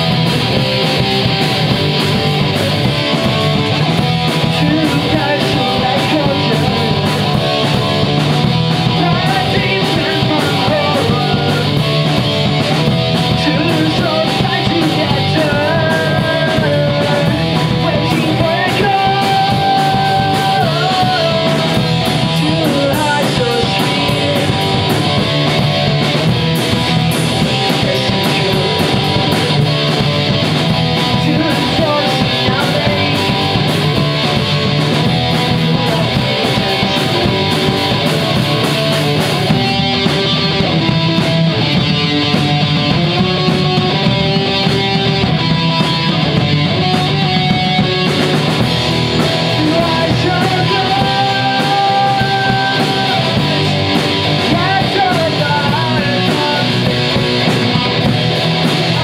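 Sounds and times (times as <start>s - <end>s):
pop-punk band playing live: 0.0s - 59.0s
man singing: 4.3s - 12.6s, 13.2s - 26.2s, 26.8s - 30.0s, 31.0s - 34.5s, 35.3s - 39.6s, 49.0s - 57.5s, 58.8s - 59.0s.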